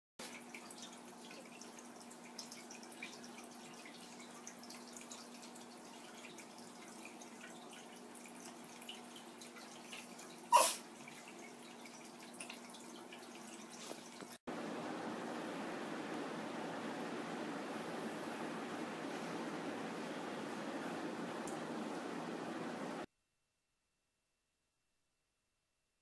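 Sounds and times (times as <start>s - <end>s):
water trickling and dripping: 0.2s - 23.1s
faint steady hum: 14.5s - 23.1s.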